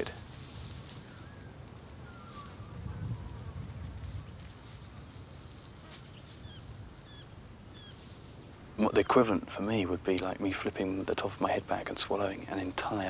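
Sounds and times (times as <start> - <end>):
faint bird chirps: 1.0 - 3.6, 4.9 - 9.2.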